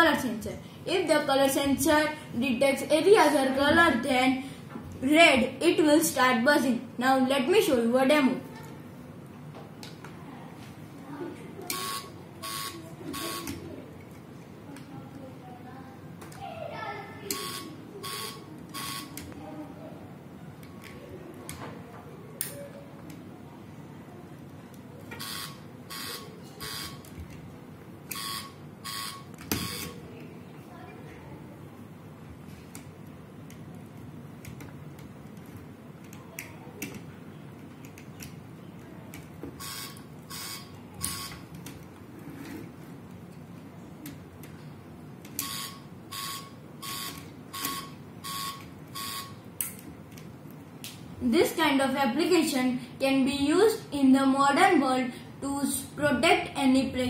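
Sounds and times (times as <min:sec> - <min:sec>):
short alarm buzzes: 0:11.7 - 0:13.5, 0:17.3 - 0:19.2, 0:25.2 - 0:27.0, 0:28.1 - 0:30.0, 0:39.6 - 0:41.4, 0:45.4 - 0:49.4
plastic parts clicking: 0:34.4 - 0:38.4.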